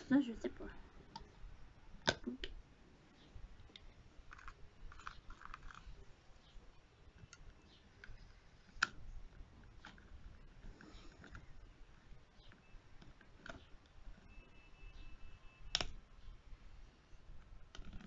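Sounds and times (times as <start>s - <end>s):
plastic scraping and rubbing: 4.2s - 6.6s, 7.2s - 14.6s, 17.4s - 18.0s
sharp plastic click: 15.7s - 16.0s.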